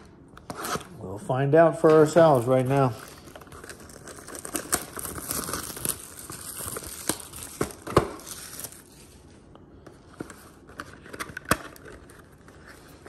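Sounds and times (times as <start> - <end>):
cellophane wrap crinkling: 1.9 - 9.4.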